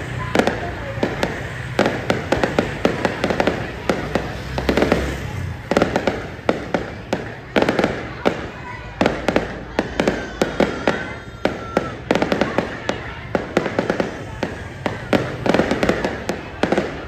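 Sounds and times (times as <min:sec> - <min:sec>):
fireworks bangs and crackles: 0:00.0 - 0:17.0.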